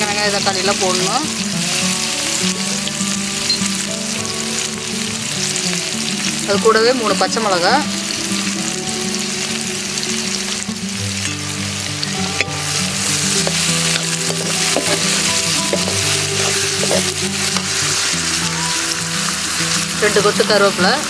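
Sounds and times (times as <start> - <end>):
onions sizzling in hot oil: 0.0 - 21.0
steel spoon stirring: 12.1 - 18.1.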